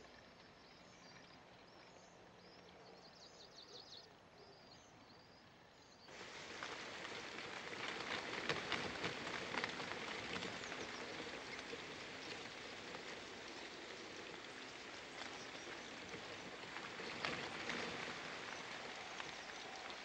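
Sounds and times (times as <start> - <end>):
raindrops ticking on leaves: 6.1 - 20.0
steady rain: 6.1 - 20.0.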